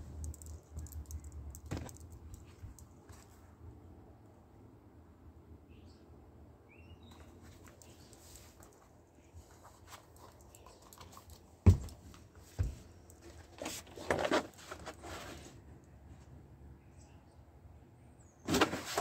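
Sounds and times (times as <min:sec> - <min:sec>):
knocks on wooden floor: 0:11.7 - 0:11.9
plastic jug rustling: 0:18.5 - 0:19.0.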